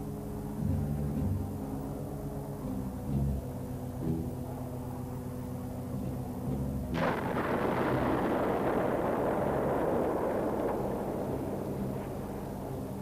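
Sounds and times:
steady drone: 0.0 - 13.0
bomb explosions rumbling: 7.0 - 13.0.

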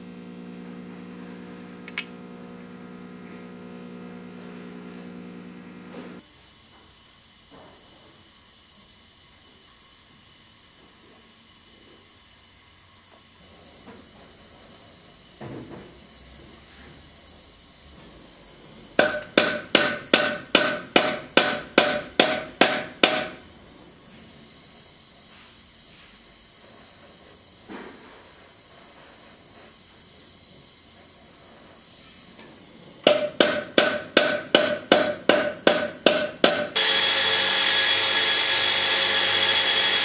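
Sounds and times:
gas torch hissing: 6.2 - 40.0
hammer striking metal: 19.0 - 23.4, 33.1 - 36.8.

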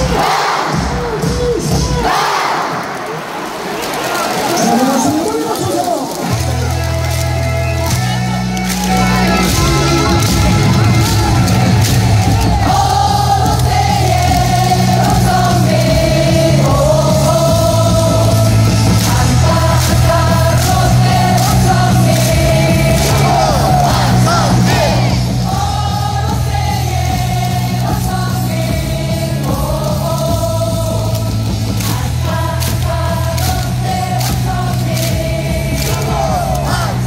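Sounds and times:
loud amplified music with bass: 0.0 - 2.6, 6.3 - 37.0
crowd singing a cheer song: 0.0 - 7.9, 8.8 - 37.0.

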